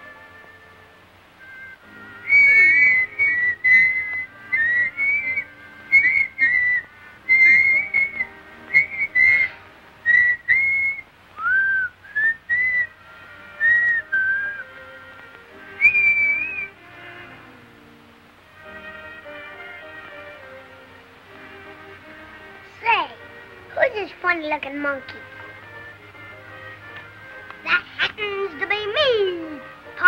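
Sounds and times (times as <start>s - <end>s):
faint background music: 0.0s - 30.0s
boy whistling: 1.4s - 14.7s, 15.8s - 16.8s.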